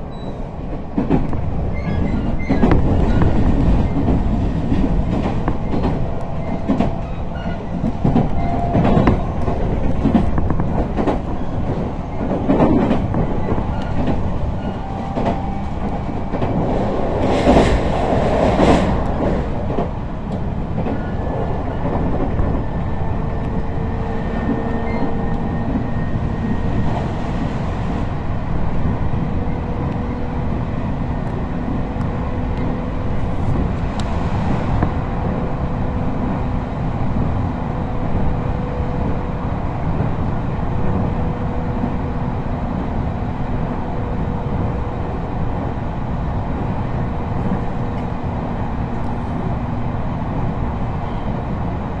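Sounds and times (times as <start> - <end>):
train wheels rumbling on rail: 0.0 - 52.0
wheels clacking over rail joints: 0.7 - 26.0.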